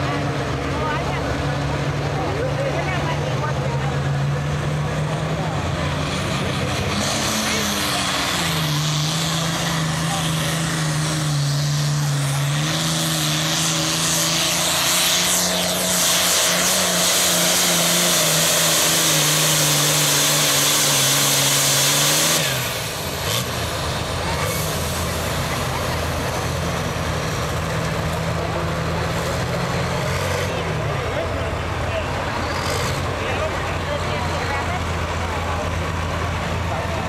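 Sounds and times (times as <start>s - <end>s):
tractor diesel engine at full power: 0.0s - 37.0s.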